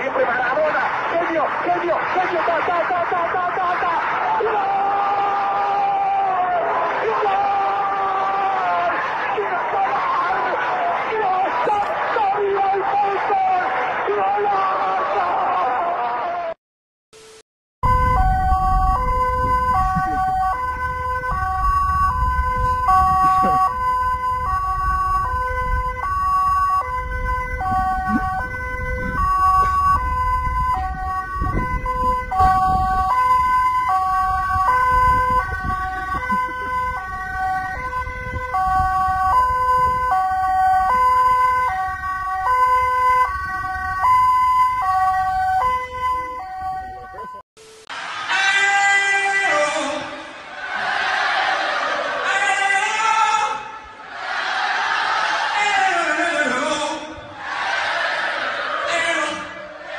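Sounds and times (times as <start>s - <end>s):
electronic siren-like tone: 17.3s - 47.8s
wind and motorcycle engine rumble: 17.9s - 42.4s.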